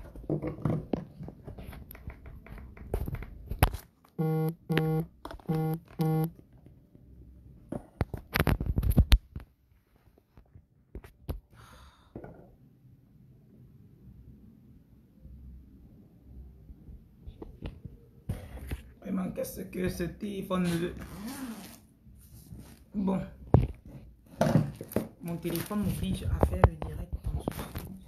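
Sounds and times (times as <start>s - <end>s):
short buzzing tones: 4.2s - 6.3s.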